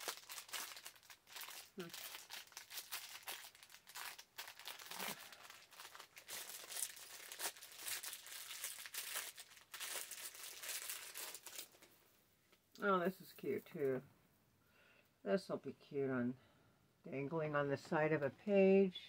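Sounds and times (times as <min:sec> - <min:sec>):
packaging crinkling: 0:00.0 - 0:12.0.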